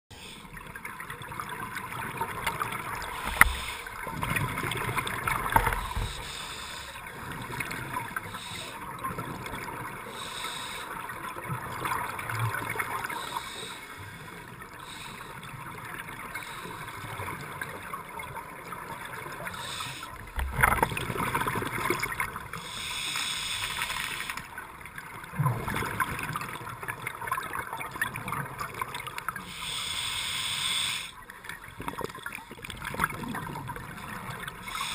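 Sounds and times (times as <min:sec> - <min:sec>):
bubbles gurgling from regulator: 0:00.6 - 0:06.2, 0:17.2 - 0:22.6, 0:25.1 - 0:29.4, 0:31.4 - 0:34.9
steady hiss: 0:22.6 - 0:24.4, 0:29.4 - 0:31.2.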